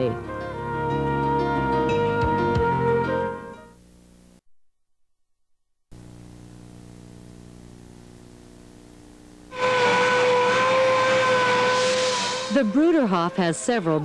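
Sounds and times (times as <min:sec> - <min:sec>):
faint steady hum: 0:03.6 - 0:04.4, 0:05.9 - 0:09.6
loud whistle-like tone: 0:09.5 - 0:14.0
rushing hiss: 0:11.5 - 0:13.0.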